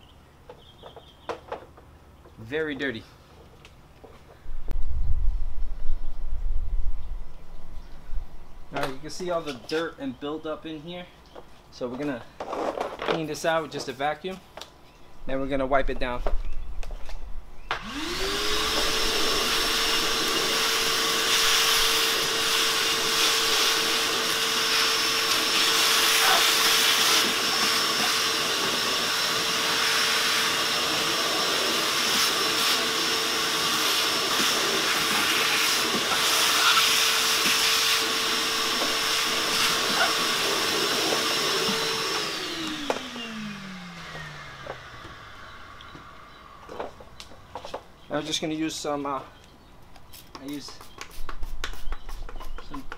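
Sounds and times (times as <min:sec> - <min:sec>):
vacuum cleaner running: 0:17.7 - 0:46.9
hose sucking debris: 0:17.9 - 0:42.8.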